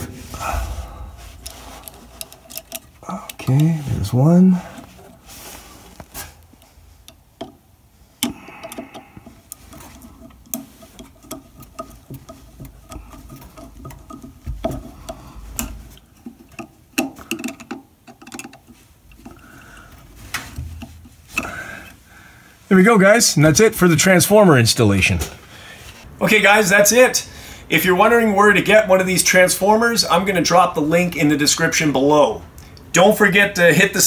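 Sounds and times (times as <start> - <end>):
thin wires being handled: 0.0 - 22.0.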